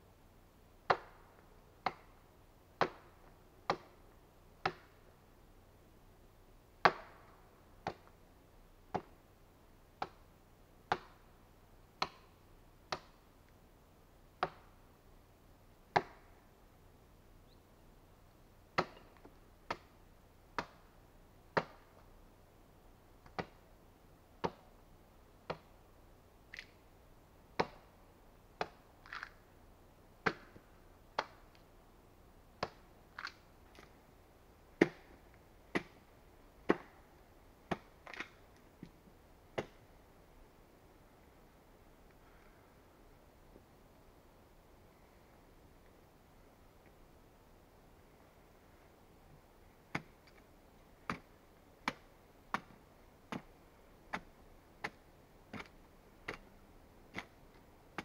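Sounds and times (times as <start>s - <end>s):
axe chopping into wood: 21.6s - 21.8s, 34.8s - 35.1s, 35.7s - 36.0s, 36.7s - 37.0s, 39.6s - 39.8s.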